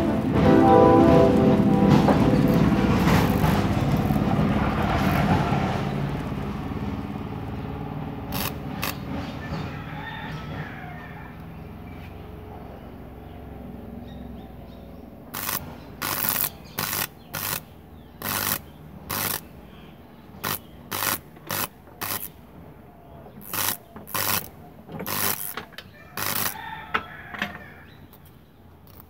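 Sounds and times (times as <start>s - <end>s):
electric arc bursts: 2.4s - 5.3s, 8.3s - 9.1s, 15.3s - 19.6s, 20.4s - 22.4s, 23.4s - 26.6s.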